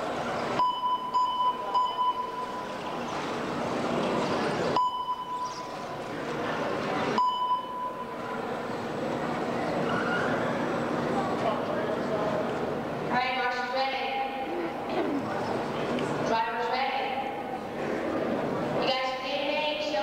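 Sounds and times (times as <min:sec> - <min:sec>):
steady background hum: 0:00.0 - 0:20.0
electronic beeps: 0:00.6 - 0:02.8, 0:04.8 - 0:05.8.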